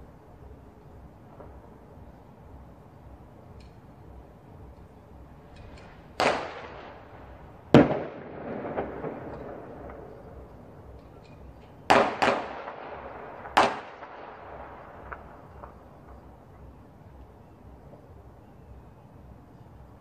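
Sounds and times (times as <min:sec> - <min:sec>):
firecracker bangs echoing: 0:06.1 - 0:10.5, 0:11.5 - 0:15.8
distant firecracker pops: 0:06.2 - 0:10.5, 0:11.9 - 0:16.2.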